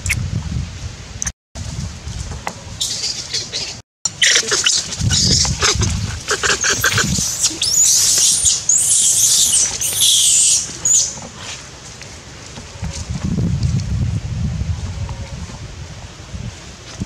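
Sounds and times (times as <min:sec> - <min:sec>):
young monkey screaming: 0:02.8 - 0:11.2.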